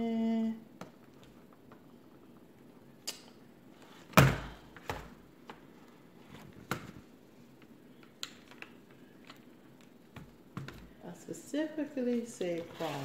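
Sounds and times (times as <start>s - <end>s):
laptop handling noise: 3.8s - 10.9s
heavy thunk: 4.2s - 4.6s.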